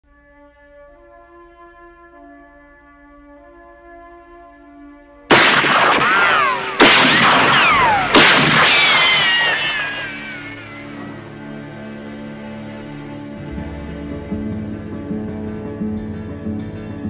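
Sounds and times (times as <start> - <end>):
soft music pad: 0.1 - 5.3, 10.9 - 17.0
cinematic impact hits: 5.3 - 11.5.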